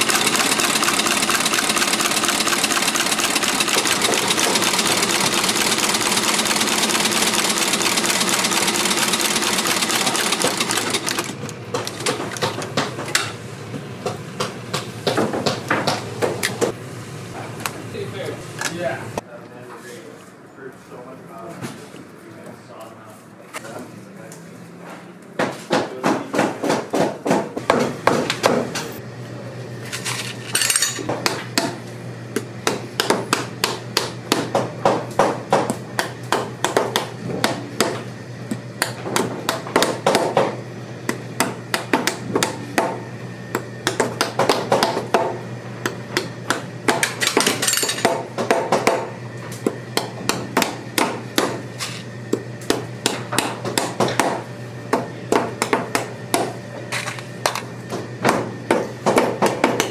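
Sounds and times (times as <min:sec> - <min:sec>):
hammer striking: 0:52.6 - 0:57.6.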